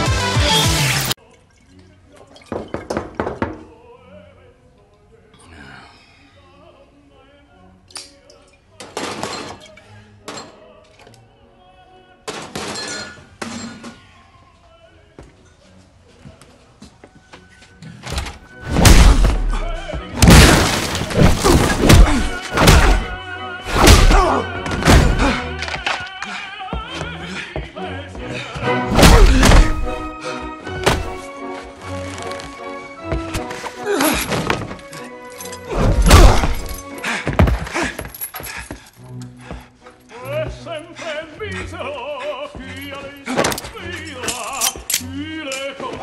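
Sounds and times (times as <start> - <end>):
operatic singing: 6.4 - 12.5, 18.5 - 34.0, 39.2 - 46.0
fight hits: 18.6 - 25.5, 28.9 - 30.2, 30.8 - 31.3, 35.8 - 38.0
wooden door battered with crashes: 18.7 - 19.6, 20.2 - 25.3
dramatic music: 28.8 - 32.1.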